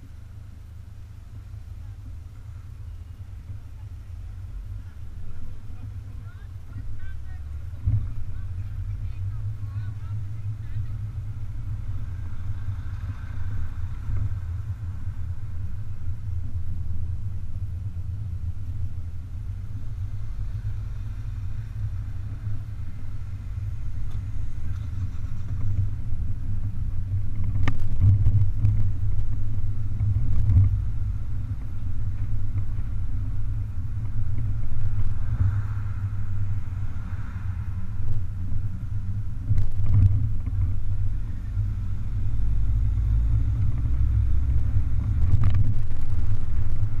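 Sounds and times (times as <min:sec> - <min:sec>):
car engine: 0:00.0 - 0:47.0
road noise: 0:00.0 - 0:47.0
wind noise: 0:18.4 - 0:47.0.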